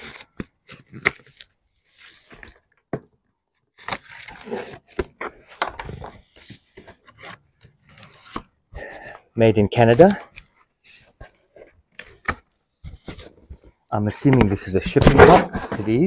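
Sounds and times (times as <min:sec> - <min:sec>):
packing tape peeling: 0:00.0 - 0:02.7, 0:03.8 - 0:05.2
cardboard flaps scraping and rustling: 0:03.8 - 0:08.6, 0:09.8 - 0:16.0.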